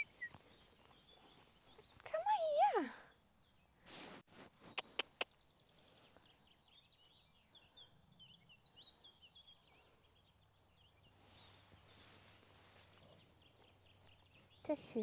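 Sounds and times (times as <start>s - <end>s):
faint birdsong chirps: 0.0s - 15.0s
sharp clicks: 4.7s - 5.3s.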